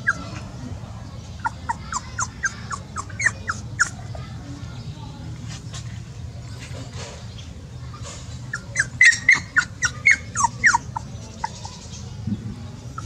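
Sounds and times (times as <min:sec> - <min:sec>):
puppy whimpering: 0:00.0 - 0:00.5, 0:01.4 - 0:04.2, 0:08.5 - 0:11.8.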